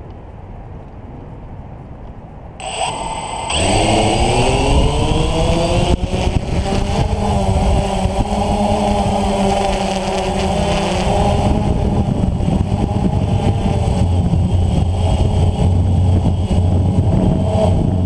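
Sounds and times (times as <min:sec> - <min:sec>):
drone propellers buzzing: 0:02.6 - 0:18.0.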